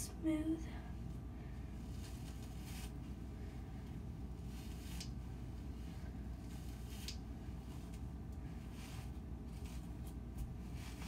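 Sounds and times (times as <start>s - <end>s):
steady low hum: 0.0s - 11.0s
hairbrush swishing through hair: 1.8s - 3.2s, 4.2s - 11.0s.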